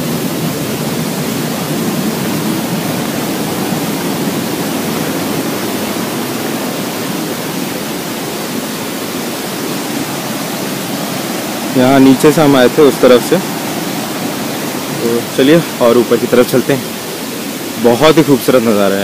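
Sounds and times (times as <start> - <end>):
waterfall rushing over rocks: 0.0 - 19.0.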